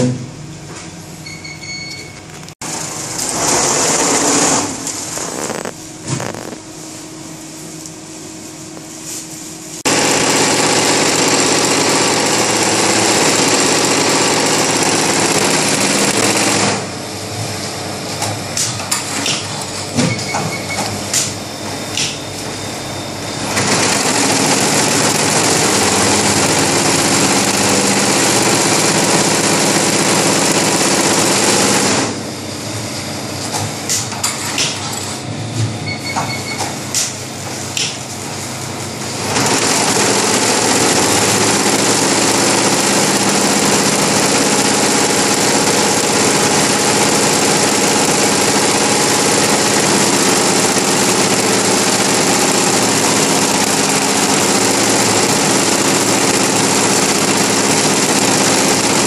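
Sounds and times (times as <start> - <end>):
embroidery machine stitching: 2.6 - 6.6, 9.8 - 16.9, 23.4 - 32.2, 39.1 - 59.0.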